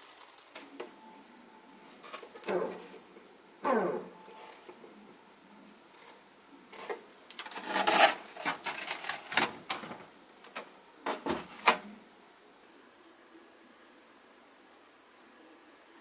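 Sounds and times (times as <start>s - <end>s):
foam sheets clicking and rubbing: 6.0s - 11.9s.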